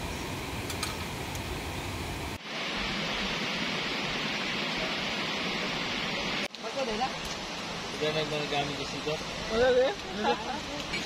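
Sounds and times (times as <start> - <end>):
bright steady hiss: 0.0 - 11.0.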